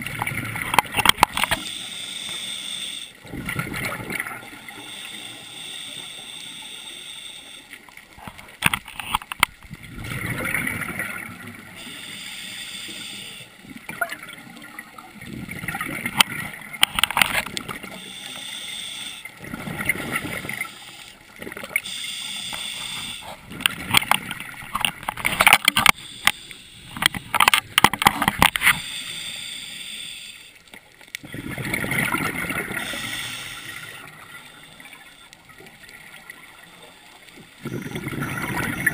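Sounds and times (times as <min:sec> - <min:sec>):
exhaled bubbles gurgling: 0:00.0 - 0:01.6, 0:03.2 - 0:04.8, 0:09.6 - 0:11.9, 0:13.6 - 0:18.0, 0:19.3 - 0:21.9, 0:31.2 - 0:38.9
regulator hissing inhale: 0:01.6 - 0:03.2, 0:04.6 - 0:07.8, 0:11.8 - 0:13.6, 0:17.9 - 0:19.4, 0:21.8 - 0:23.4, 0:25.9 - 0:27.4, 0:28.6 - 0:30.6, 0:32.7 - 0:35.3.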